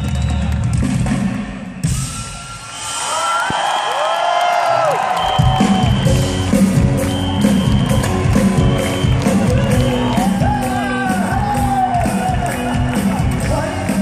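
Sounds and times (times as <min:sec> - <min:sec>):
crowd cheering and whooping: 0:01.8 - 0:14.0
live band playing: 0:05.2 - 0:14.0.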